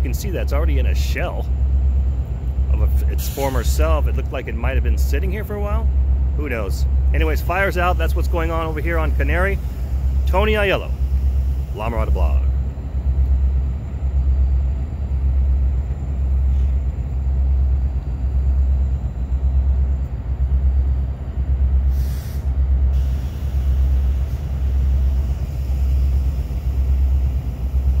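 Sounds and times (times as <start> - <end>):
low pulsing rumble: 0.0 - 28.0
short hiss: 3.2 - 3.7, 21.9 - 25.1.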